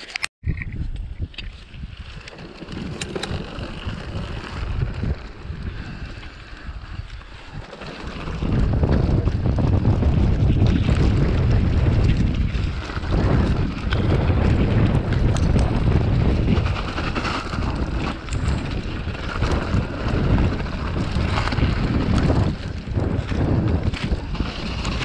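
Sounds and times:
wind buffeting microphone: 0.4 - 25.0
bike rattling and knocking: 1.7 - 25.0
tyres rumbling on stony ground: 1.9 - 25.0.

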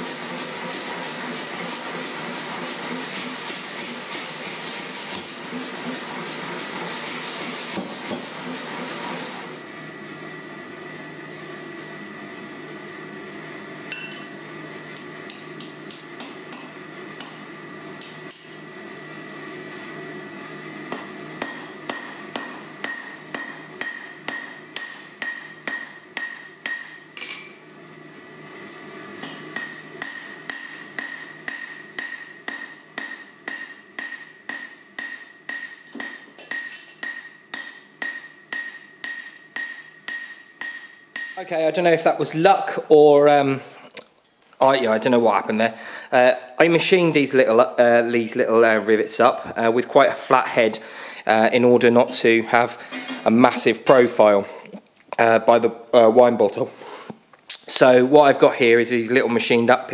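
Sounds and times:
hammer striking rivet on anvil: 3.2 - 5.3, 20.9 - 27.5, 29.2 - 41.4.

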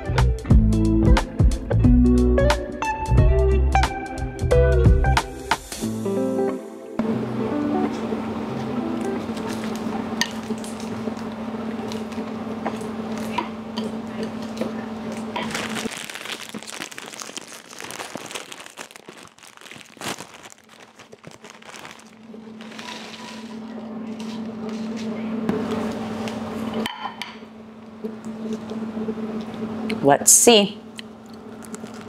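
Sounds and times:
foil chip bag crinkling: 15.1 - 23.9, 31.5 - 32.0.

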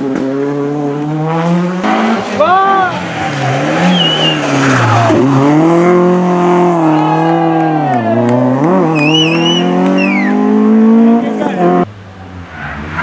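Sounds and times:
rally car engine passing: 0.0 - 13.0
tyre squeal: 3.8 - 5.2, 8.9 - 10.4.

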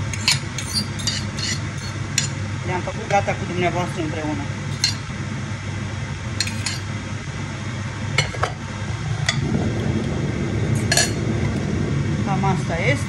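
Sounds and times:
steady low hum: 0.0 - 13.0
metal spoon clinking on glass dish: 0.2 - 2.4, 4.7 - 5.0, 6.4 - 6.9.

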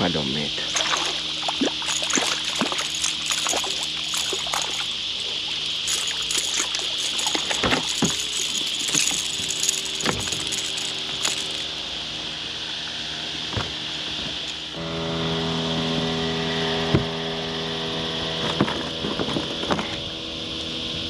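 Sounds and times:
high insect buzz: 0.0 - 20.4
fish splashing at water surface: 0.6 - 11.8.

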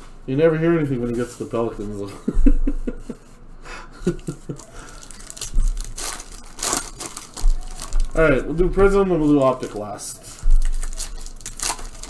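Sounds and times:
card pack wrappers rustling: 4.4 - 12.0.

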